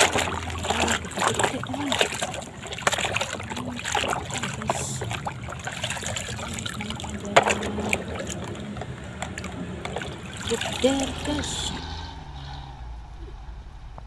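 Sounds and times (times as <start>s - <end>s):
water splashing and dripping: 0.0s - 14.0s.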